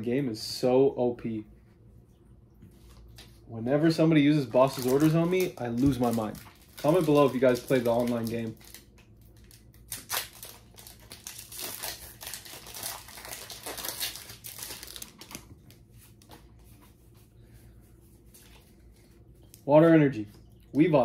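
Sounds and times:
foil wrapper tearing and crinkling: 4.4s - 15.8s
cards rustling: 4.5s - 17.2s.

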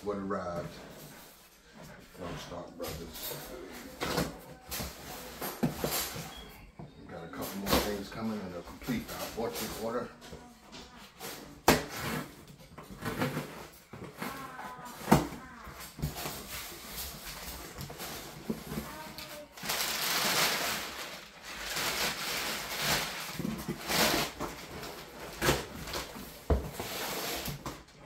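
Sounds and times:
packing paper rustling: 12.9s - 27.9s.

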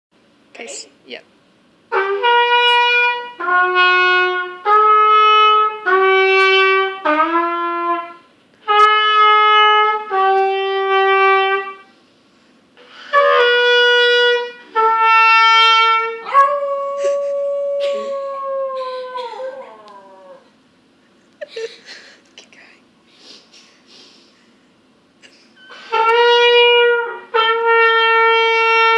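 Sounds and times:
trumpet playing held notes: 1.9s - 11.9s, 12.8s - 17.0s, 25.7s - 28.9s
dog howling: 16.2s - 20.5s.

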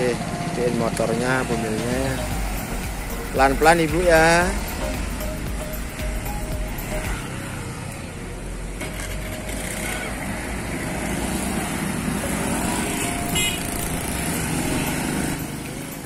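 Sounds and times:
cars passing: 0.0s - 16.0s
motorbikes passing: 0.0s - 16.0s.

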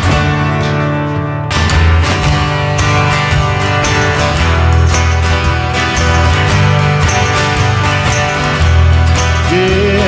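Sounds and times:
acoustic guitars strumming: 0.0s - 10.0s
drums and bass: 0.0s - 10.0s
person singing: 9.4s - 10.0s.

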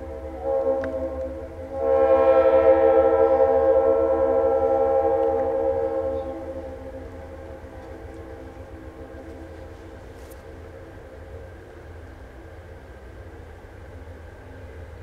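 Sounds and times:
locomotive air horn blast: 0.0s - 10.6s.

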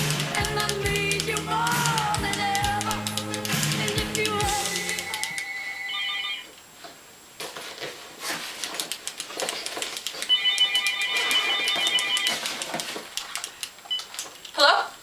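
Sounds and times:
phone ringtone melody: 0.4s - 6.5s, 10.3s - 12.5s
rustling in bag: 6.8s - 10.3s.

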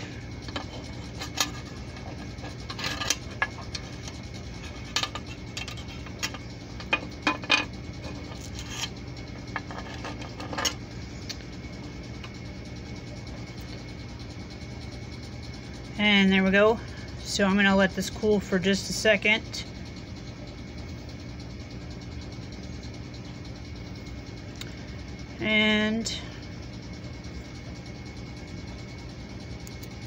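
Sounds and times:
metallic clicks and scrapes: 0.0s - 11.4s
low steady hum: 0.0s - 30.0s.

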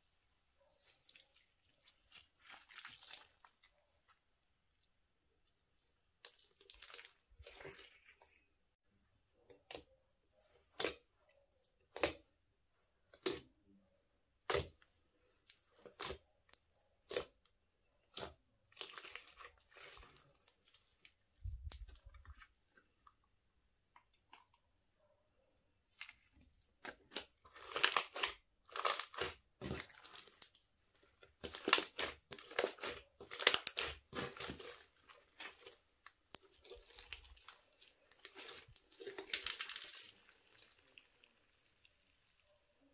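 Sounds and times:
slime crunching and crackling: 0.8s - 4.0s, 6.1s - 8.5s, 14.4s - 23.2s, 25.8s - 42.4s.

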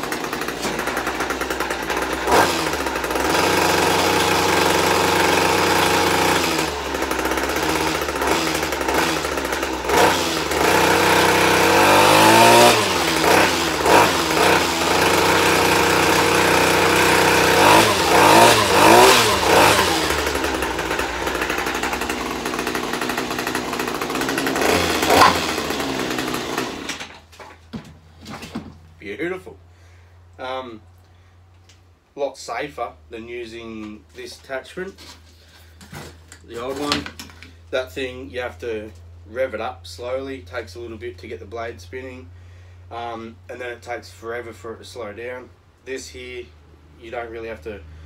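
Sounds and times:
line trimmer engine revving: 0.0s - 27.2s.

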